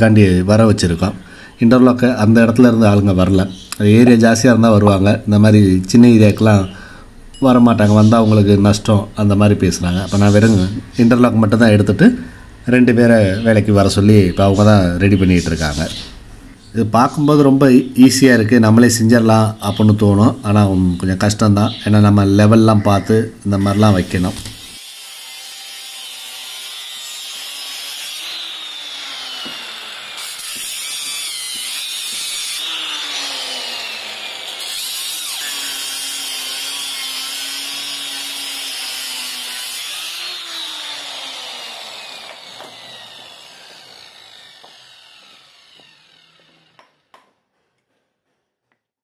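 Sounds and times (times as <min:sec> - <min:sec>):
power tool running: 0:23.6 - 0:47.1.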